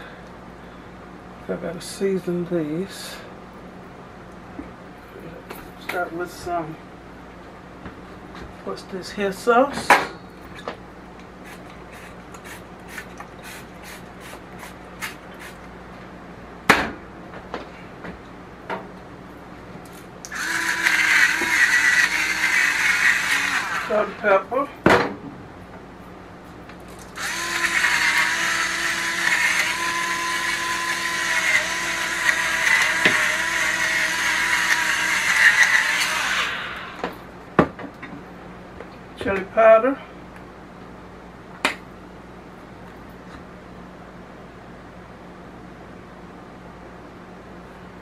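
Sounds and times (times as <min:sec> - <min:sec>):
electric grinder whirring: 0:20.3 - 0:24.2, 0:27.2 - 0:37.1.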